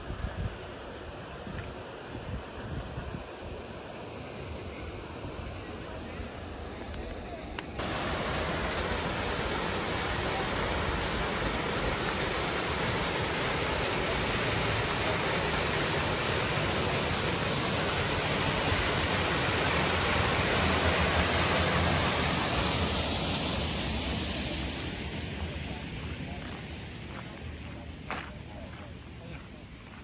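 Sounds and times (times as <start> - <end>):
water rushing through gate: 7.8 - 26.3.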